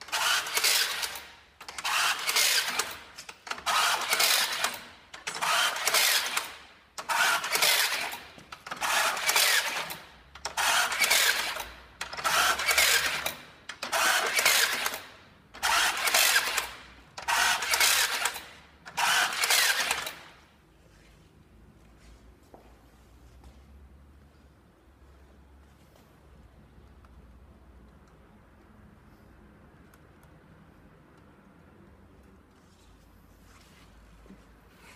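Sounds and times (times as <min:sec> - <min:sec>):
rebar tying machine motor bursts: 0:00.0 - 0:20.4.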